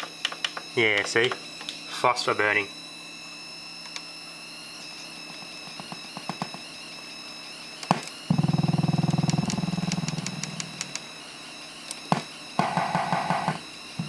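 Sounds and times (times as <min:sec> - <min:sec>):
high-pitched television whine: 0:00.0 - 0:14.0.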